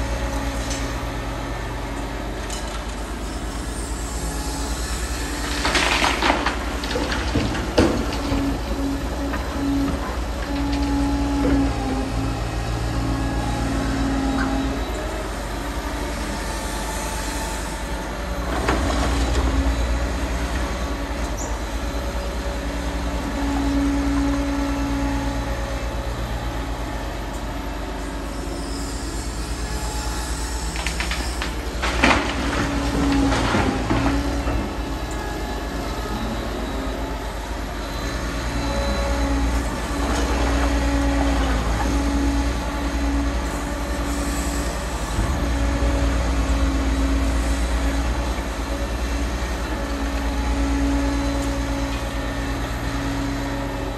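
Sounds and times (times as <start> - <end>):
excavator engine running: 0.0 - 53.9
metallic squeals: 28.0 - 53.6.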